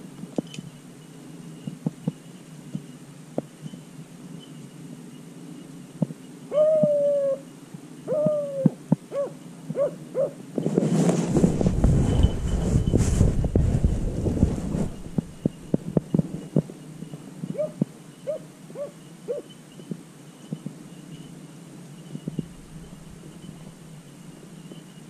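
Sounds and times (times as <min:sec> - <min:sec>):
wind on microphone: 0:08.1 - 0:17.9, 0:22.0 - 0:24.8
dog baying: 0:17.5 - 0:19.5.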